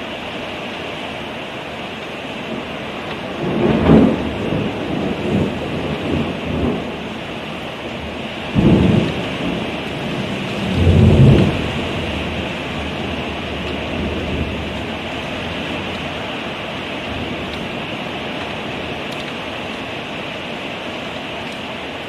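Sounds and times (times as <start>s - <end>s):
heavy rain pouring: 0.0s - 22.0s
thunder rumbling: 2.5s - 20.0s.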